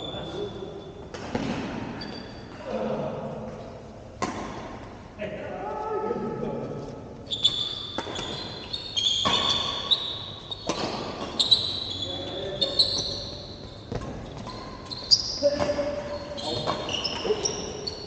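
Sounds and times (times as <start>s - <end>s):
sneakers squeaking on court floor: 0.0s - 2.5s, 7.2s - 18.0s
racket hitting shuttlecock: 4.2s - 4.9s, 7.9s - 8.6s, 9.2s - 11.6s.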